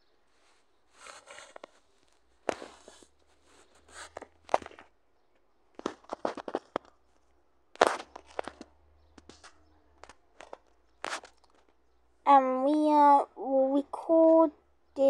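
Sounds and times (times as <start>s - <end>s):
short rustling scrapes: 0.3s - 4.8s.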